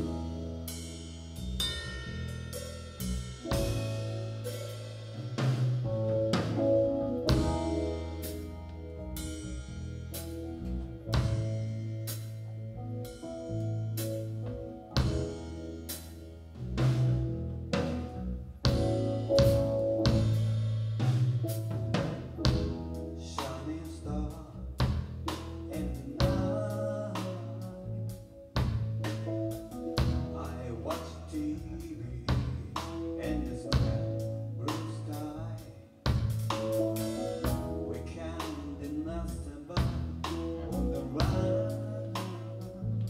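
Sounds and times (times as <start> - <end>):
live band playing: 0.0 - 43.0
drum hits: 3.4 - 8.4.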